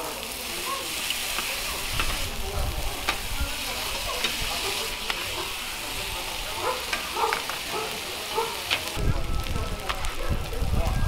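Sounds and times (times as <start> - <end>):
food sizzling on a griddle: 0.0 - 11.0
metal spatulas scraping a griddle: 3.0 - 5.8.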